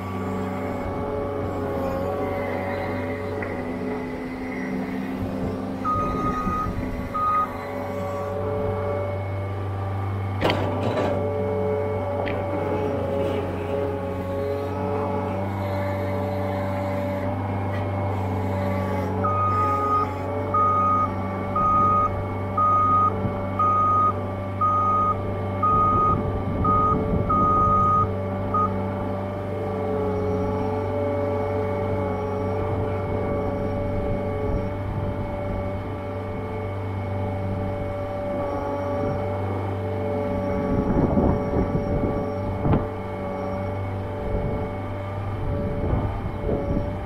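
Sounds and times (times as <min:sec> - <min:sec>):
tractor engine running: 0:00.0 - 0:47.0
reversing alarm beeps: 0:05.8 - 0:07.7, 0:19.2 - 0:28.8.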